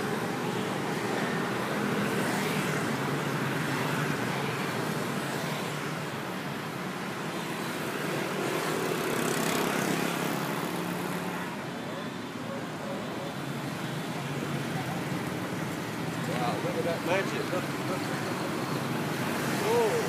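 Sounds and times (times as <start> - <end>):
road traffic noise: 0.0 - 20.0.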